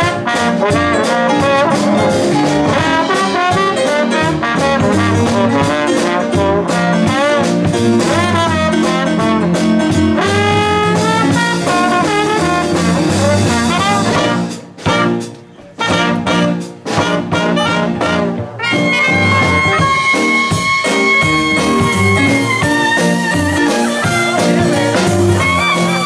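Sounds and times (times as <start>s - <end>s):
jazz band playing: 0.0s - 26.0s
trombone: 0.0s - 26.0s
trumpet: 0.0s - 26.0s.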